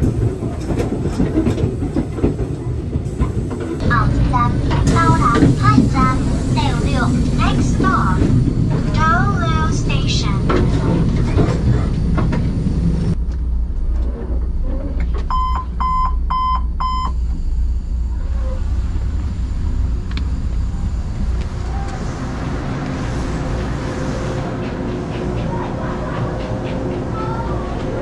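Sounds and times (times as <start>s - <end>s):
low hum of stationary train: 0.0s - 28.0s
short electronic beeps: 15.3s - 17.3s.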